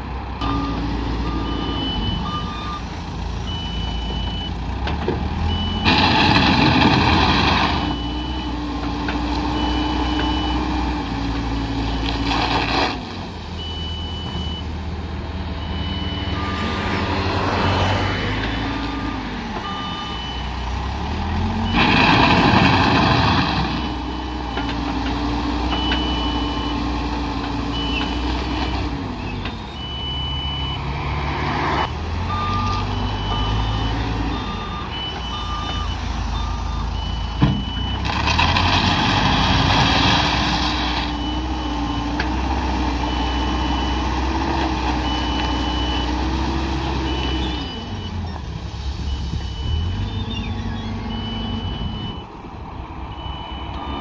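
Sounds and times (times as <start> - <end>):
backhoe diesel engine revving: 0.0 - 54.0
back-up alarm beeping: 0.4 - 4.6, 15.6 - 20.6, 29.2 - 31.0, 31.8 - 38.1, 49.1 - 52.4, 53.1 - 54.0.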